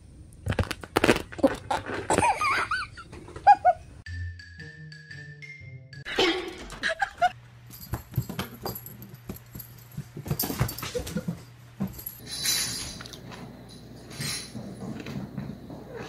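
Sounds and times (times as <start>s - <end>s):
animals scuffling: 7.6s - 16.0s.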